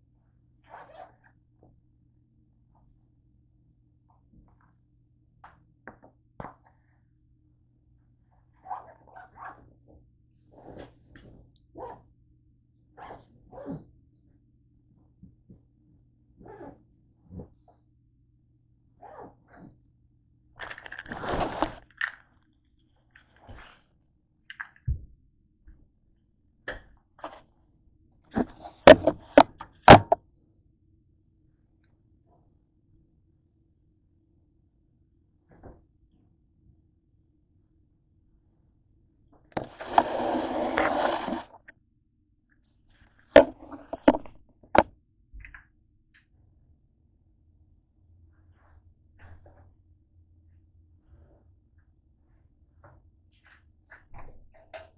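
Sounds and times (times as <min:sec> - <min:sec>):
camera scraping on countertop: 0:21.1 - 0:21.8, 0:28.4 - 0:30.2, 0:39.6 - 0:41.7, 0:43.4 - 0:44.8
handling clicks and knocks: 0:28.4 - 0:30.2.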